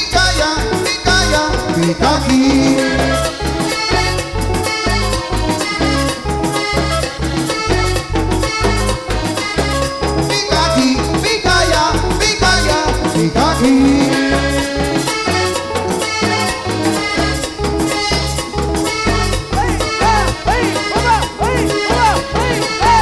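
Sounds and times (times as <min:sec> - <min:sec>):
button accordion melody: 0:00.0 - 0:23.0
electric bass: 0:00.0 - 0:23.0
percussion keeping a beat: 0:00.0 - 0:23.0.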